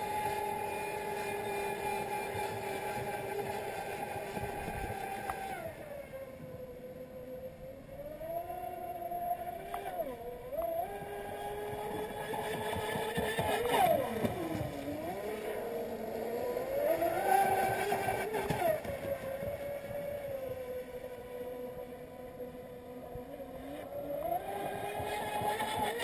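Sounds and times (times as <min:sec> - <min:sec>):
electric motor boat whine: 0:00.0 - 0:26.0.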